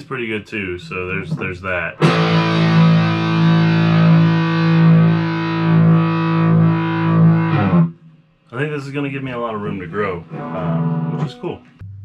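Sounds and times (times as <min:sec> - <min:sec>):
distorted electric guitar chord: 0:02.0 - 0:08.0, 0:09.6 - 0:11.8.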